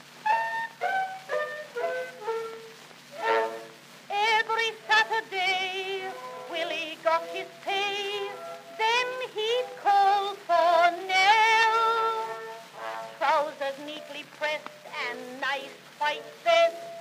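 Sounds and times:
small orchestra: 0.2s - 4.0s
woman singing with vibrato: 4.1s - 17.0s.

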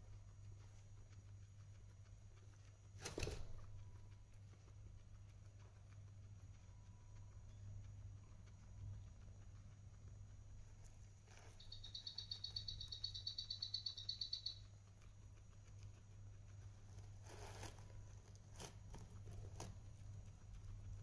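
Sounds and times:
guinea pig rustling hay: 0.0s - 21.0s
rapid high-pitched chirping: 11.4s - 15.4s.

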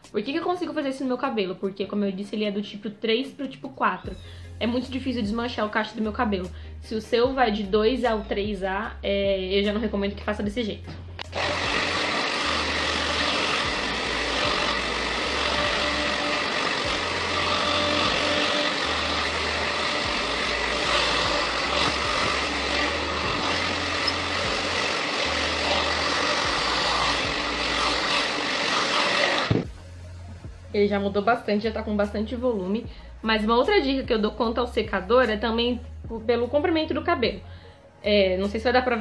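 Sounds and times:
hair dryer blowing: 11.2s - 29.8s.

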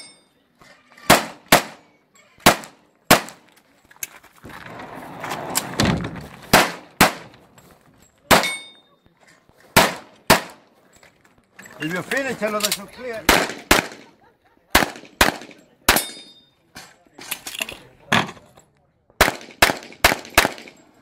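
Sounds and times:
pistol shots: 1.1s - 1.8s, 2.4s - 3.5s, 6.5s - 7.3s, 8.3s - 8.7s, 9.8s - 10.6s, 13.2s - 14.1s, 14.7s - 16.2s, 19.2s - 20.8s
rustling noise: 3.7s - 6.6s.

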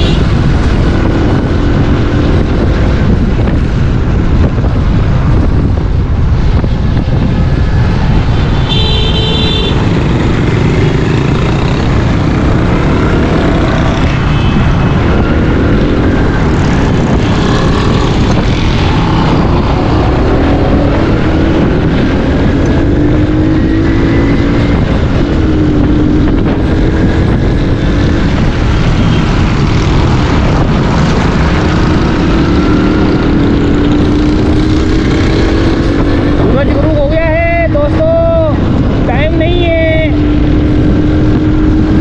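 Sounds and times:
wind and road noise: 0.0s - 42.0s
motorcycle engine running: 6.9s - 37.1s.

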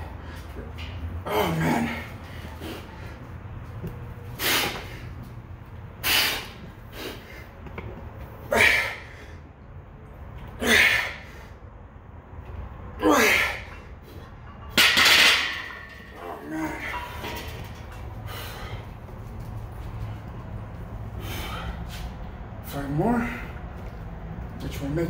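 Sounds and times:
man breathing forcefully: 4.2s - 5.2s, 6.0s - 7.7s, 8.5s - 9.5s, 18.2s - 19.1s, 21.0s - 22.3s.

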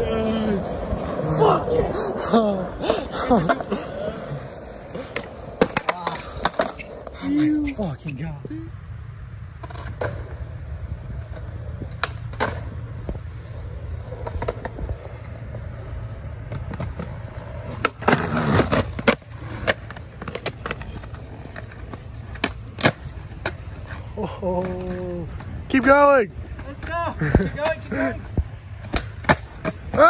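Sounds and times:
skateboard clatter: 0.0s - 7.8s, 9.6s - 30.0s
skateboard wheels rolling on concrete: 0.0s - 30.0s
skateboard clacks: 2.3s - 7.2s, 11.1s - 30.0s.

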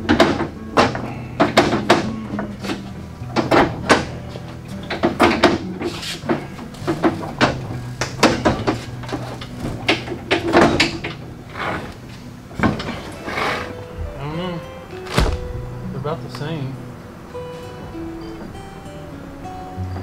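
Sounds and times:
metal clanks and knocks: 0.0s - 14.2s.

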